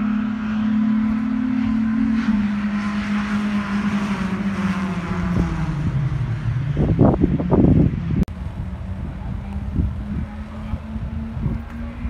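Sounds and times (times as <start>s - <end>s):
car engine droning: 0.0s - 12.0s
road noise hiss: 8.2s - 12.0s.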